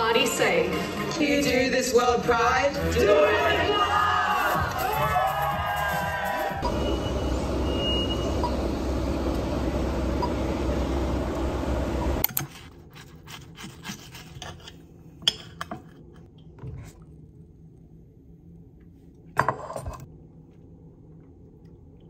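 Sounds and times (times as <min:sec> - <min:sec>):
loud background din: 0:02.3 - 0:06.8.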